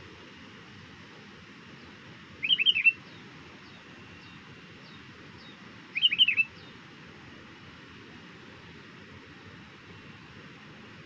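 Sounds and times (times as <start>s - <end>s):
bulbul calling: 2.4s - 3.0s, 6.0s - 6.5s
faint high bird chirps: 2.4s - 6.7s.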